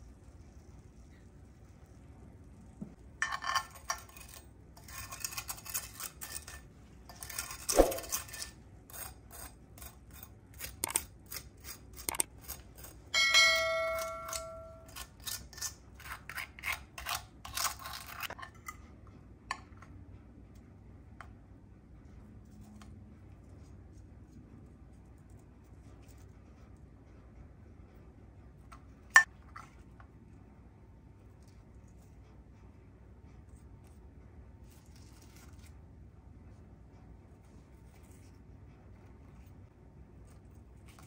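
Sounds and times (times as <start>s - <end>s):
ringing chime: 13.2s - 14.9s.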